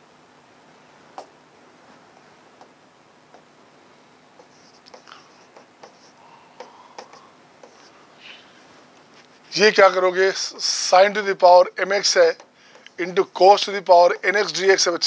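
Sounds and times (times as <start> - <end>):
pen writing on paper: 4.4 - 6.2, 7.0 - 7.9.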